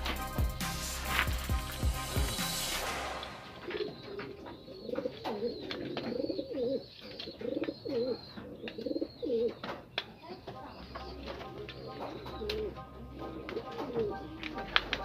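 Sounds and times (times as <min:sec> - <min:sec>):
pigeons cooing: 0:03.6 - 0:09.9, 0:10.6 - 0:15.0.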